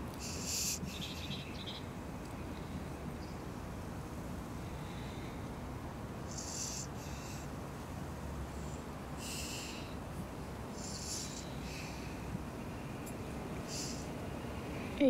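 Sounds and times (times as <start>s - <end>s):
steady low hum: 0.0s - 15.0s
breathing and sniffing: 6.2s - 7.5s, 8.5s - 10.0s, 10.8s - 12.4s, 13.6s - 14.2s.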